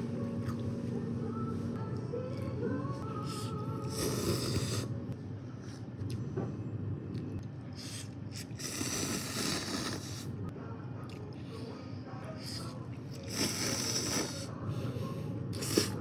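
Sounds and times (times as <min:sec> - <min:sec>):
person slurping noodles: 0:03.9 - 0:04.9, 0:07.8 - 0:10.3, 0:13.2 - 0:14.5, 0:15.5 - 0:16.0.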